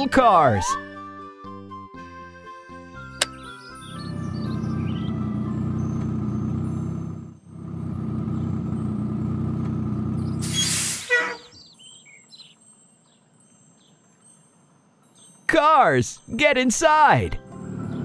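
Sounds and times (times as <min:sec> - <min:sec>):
truck engine running: 0:03.8 - 0:11.5, 0:17.5 - 0:18.0
air brake hiss: 0:10.4 - 0:11.4.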